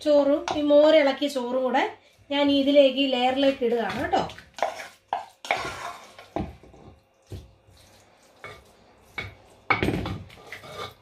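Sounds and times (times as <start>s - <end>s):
spoon scraping saucepan: 4.5s - 6.4s, 10.0s - 11.0s.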